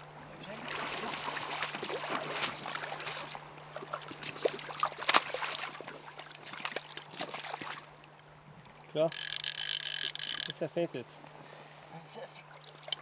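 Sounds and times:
wading boots splashing: 0.4s - 7.9s
fish splashing in shallow water: 0.5s - 10.6s, 12.5s - 13.0s.

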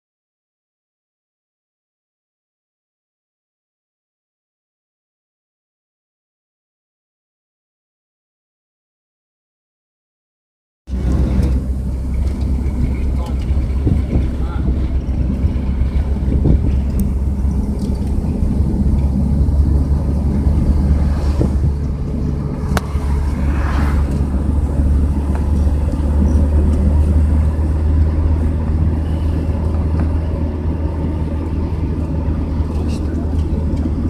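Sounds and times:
road and engine rumble: 10.9s - 34.0s
car passing swish: 17.7s - 27.9s.

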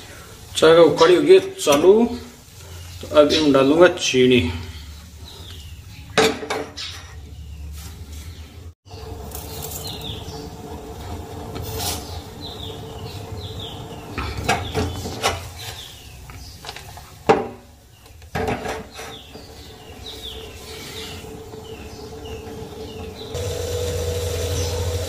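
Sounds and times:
birds chirping: 0.1s - 25.0s.

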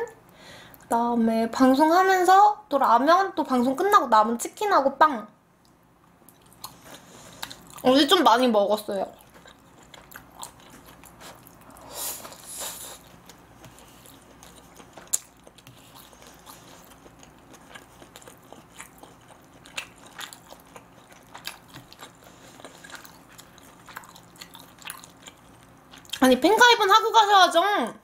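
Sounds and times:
person chewing food: 5.6s - 7.8s, 9.1s - 26.2s.

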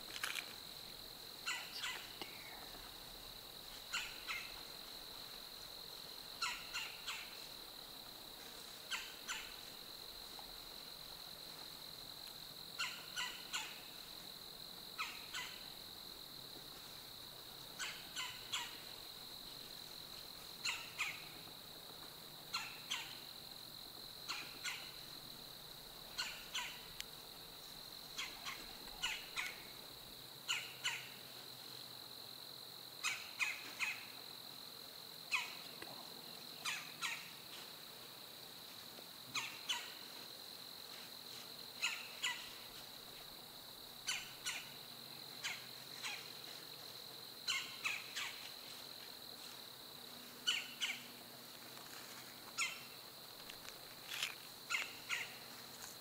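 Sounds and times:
bird calling: 1.4s - 2.6s, 3.9s - 4.6s, 6.4s - 7.4s, 17.8s - 18.8s, 26.1s - 26.9s, 28.2s - 29.6s, 41.8s - 42.6s, 47.5s - 48.4s, 50.4s - 51.1s, 54.7s - 55.4s.

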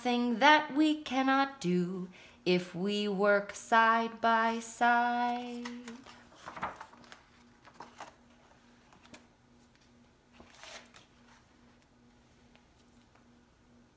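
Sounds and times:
faint hum: 0.0s - 13.9s
paper rustling: 5.2s - 11.8s
book cover brushing floor: 7.8s - 11.8s.

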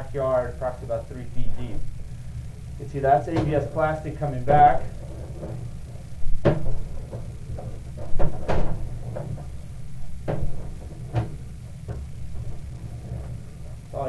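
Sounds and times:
steady low hum: 0.0s - 14.0s
cable knocks and clunks: 5.1s - 13.8s.

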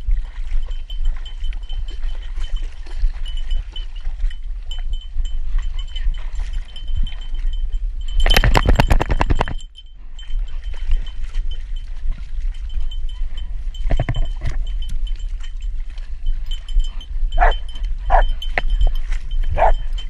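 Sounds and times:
loud fast rattling: 8.3s - 9.6s
bell jingling: 12.6s - 20.0s
water splashing: 13.6s - 20.0s.

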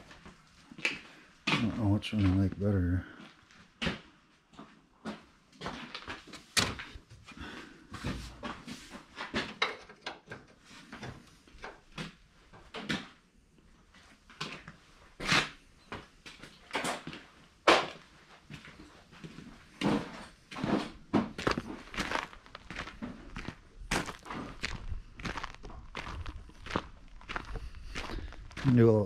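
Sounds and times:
footsteps on concrete: 18.6s - 29.0s.

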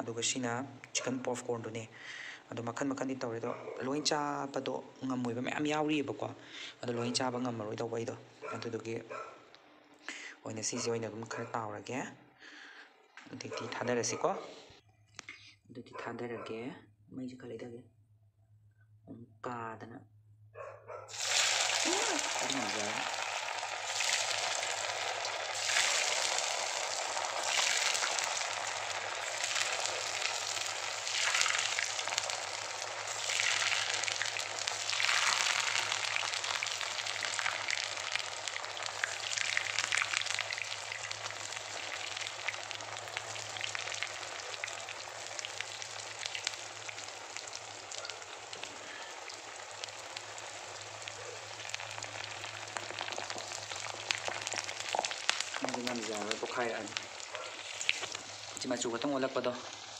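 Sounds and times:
food sizzling in hot oil: 21.1s - 59.9s.

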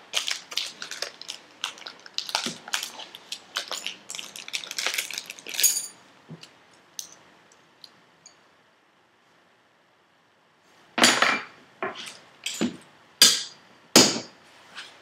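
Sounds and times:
crackling crinkling clicks: 0.1s - 5.7s.

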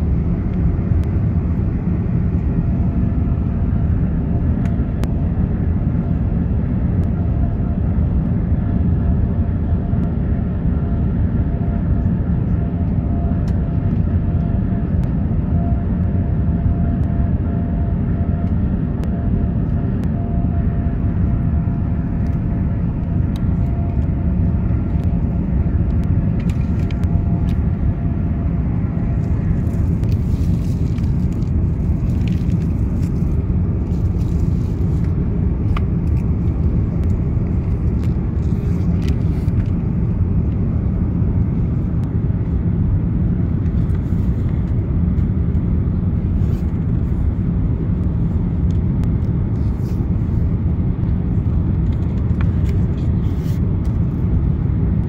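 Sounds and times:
jet engines and airflow rumble: 0.0s - 55.0s.

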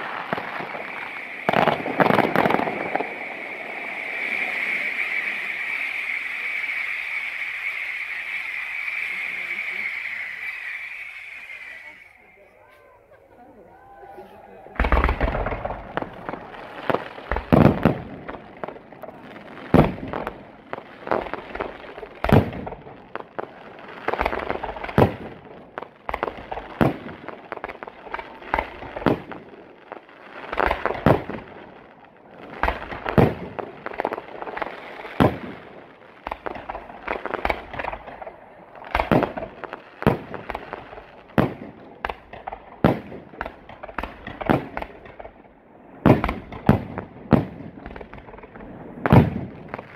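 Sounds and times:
rush of firework launches: 0.0s - 12.5s
fireworks bursting with sharp bangs: 0.0s - 49.9s.

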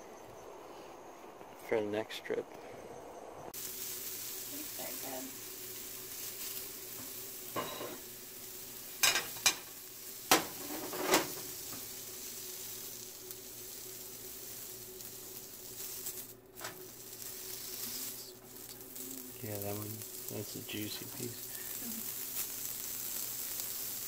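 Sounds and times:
fish sizzling in a frying pan: 3.6s - 24.0s
knocks and clatters in pan: 7.0s - 8.0s, 9.0s - 11.9s.

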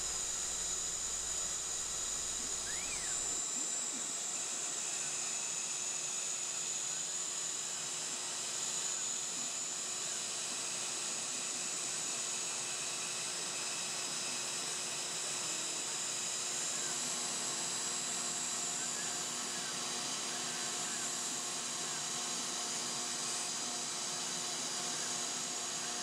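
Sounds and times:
vacuum hissing: 0.0s - 3.4s
router spindle whining: 0.0s - 3.5s.

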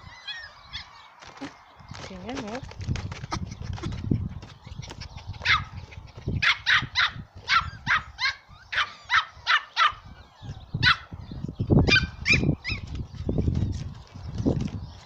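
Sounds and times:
dog yapping: 5.4s - 5.8s, 6.4s - 10.2s.

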